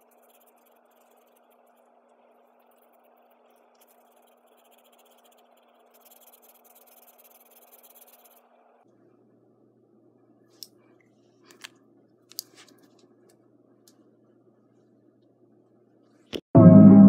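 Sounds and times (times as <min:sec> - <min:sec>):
marker scratching on paper: 0:00.0 - 0:08.5
low steady hum: 0:00.0 - 0:17.0.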